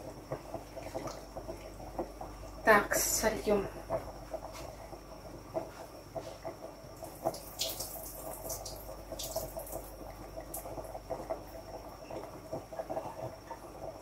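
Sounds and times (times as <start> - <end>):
liquid trickling and dripping: 0.0 - 2.7, 6.8 - 14.0.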